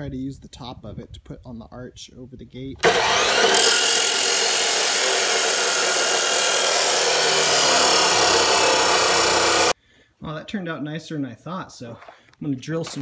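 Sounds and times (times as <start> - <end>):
circular saw cutting metal: 2.8 - 9.8.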